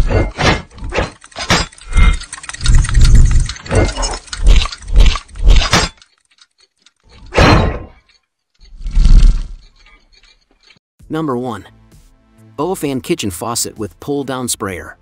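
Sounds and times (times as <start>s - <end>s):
metallic clanks and crashes: 0.0s - 8.3s.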